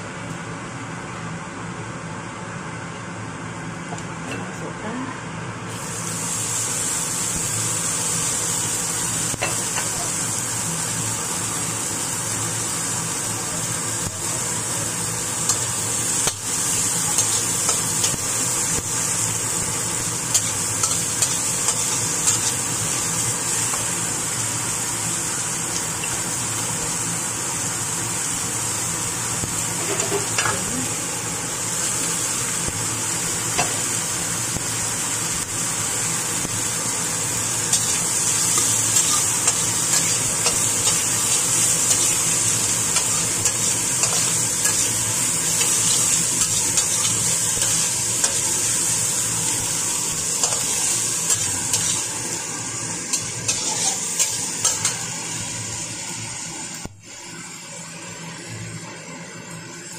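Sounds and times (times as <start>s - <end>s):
vegetables sizzling in a wok: 5.6s - 59.9s
spatula scraping wok: 29.7s - 30.8s, 37.7s - 52.3s, 53.0s - 55.1s.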